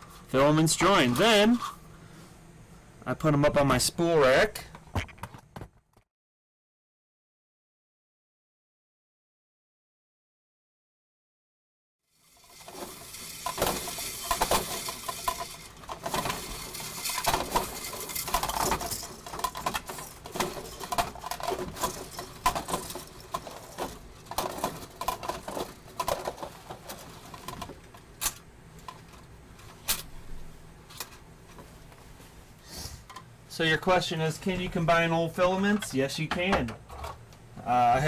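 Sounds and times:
plastic spools clattering: 12.2 - 30.0.

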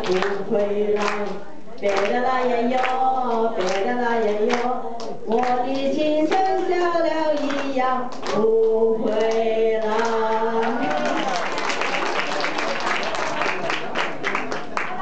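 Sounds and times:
hands clapping along: 0.0 - 2.2, 2.8 - 3.0, 3.6 - 6.7, 7.4 - 15.0.

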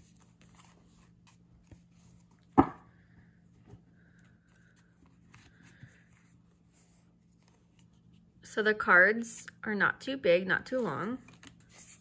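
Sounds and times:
faint paper rustles: 0.0 - 2.5, 3.2 - 8.4, 10.7 - 12.0.

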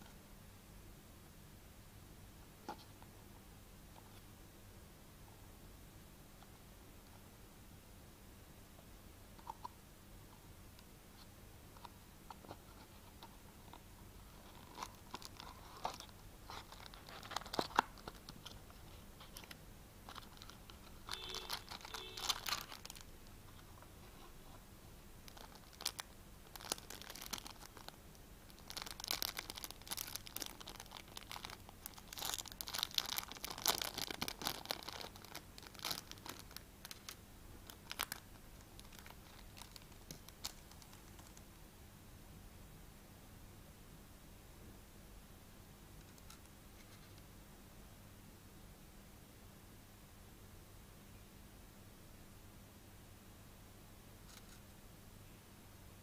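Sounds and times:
packaging crinkling and tearing: 14.4 - 23.1, 25.3 - 41.4.

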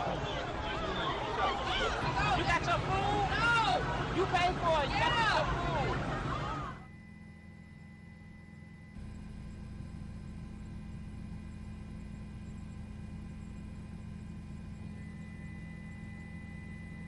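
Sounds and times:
low electrical hum: 0.0 - 17.0
faint high tones: 6.4 - 10.1.

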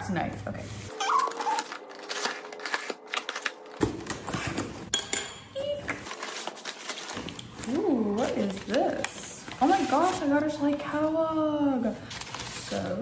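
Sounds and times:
knife slitting packing tape: 0.9 - 3.7.

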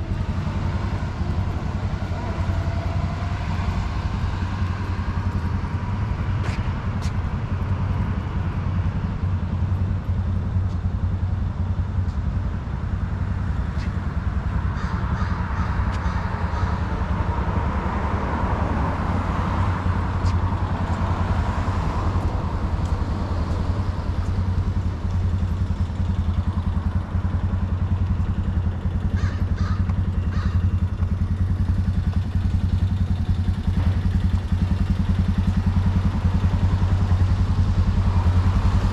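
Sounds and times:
small engine idling: 21.8 - 38.9.

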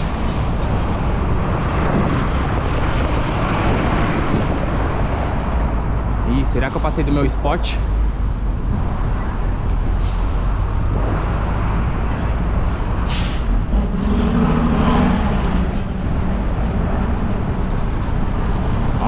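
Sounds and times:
wind buffeting microphone: 0.0 - 7.0
street traffic noise: 0.0 - 19.0
vehicle engine droning past: 13.6 - 17.2.

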